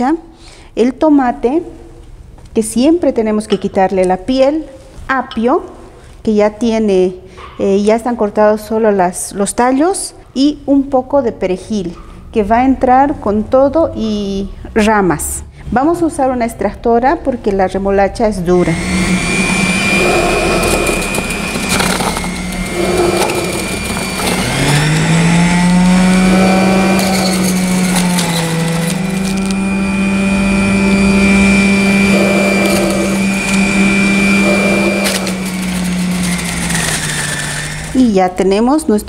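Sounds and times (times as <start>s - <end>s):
juicer motor humming: 18.6s - 38.2s
beetroot crunching in juicer: 18.6s - 38.4s.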